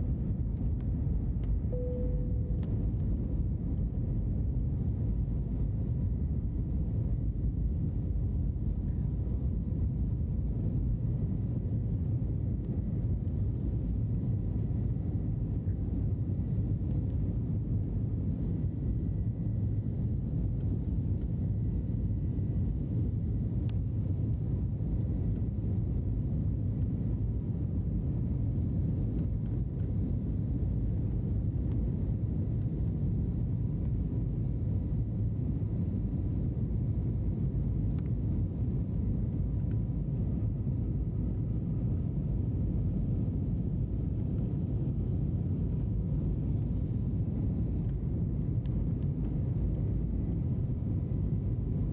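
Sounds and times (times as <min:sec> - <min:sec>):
jet engine cabin rumble: 0:00.0 - 0:51.9
faint steady tones: 0:01.4 - 0:03.8.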